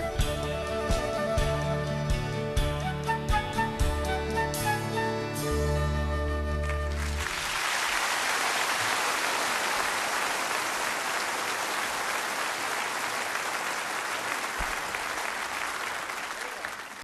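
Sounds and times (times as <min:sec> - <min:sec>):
large audience applauding: 0:06.5 - 0:17.0.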